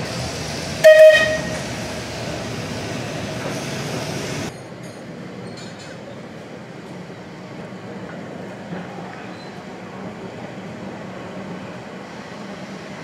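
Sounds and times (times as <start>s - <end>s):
tram rumbling on track: 0.0s - 13.0s
tram warning gong: 0.8s - 1.7s.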